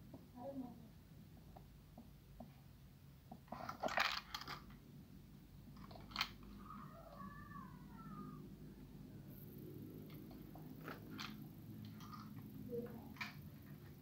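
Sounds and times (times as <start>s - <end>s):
cat meowing: 6.6s - 8.4s.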